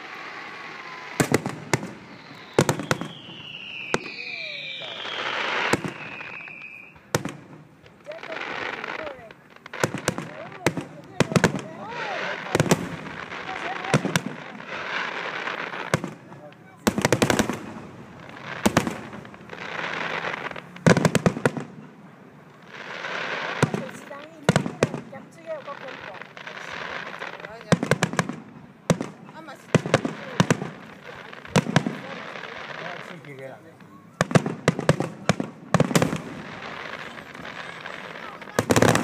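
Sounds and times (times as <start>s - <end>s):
long high falling whistle: 0.0s - 7.0s
fireworks bursting in sharp bangs: 0.0s - 39.0s
fireworks crackling: 0.0s - 39.0s.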